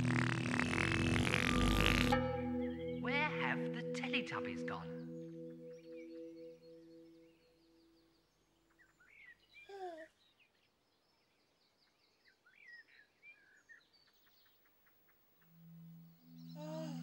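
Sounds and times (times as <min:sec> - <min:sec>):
faint musical tones: 0:00.0 - 0:07.8, 0:15.4 - 0:17.0
faint birds chirping: 0:00.0 - 0:17.0.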